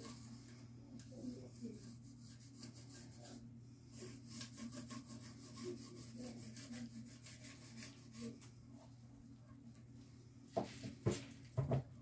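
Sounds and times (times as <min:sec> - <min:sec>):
hand tool rubbing on wood: 0:00.0 - 0:08.4.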